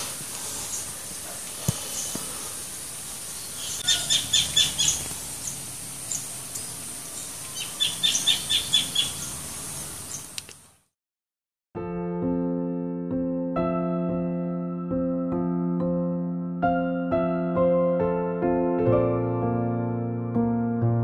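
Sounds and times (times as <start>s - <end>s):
steady high hiss: 0.0s - 10.8s
small bird chirping: 0.5s - 2.3s, 3.2s - 10.4s.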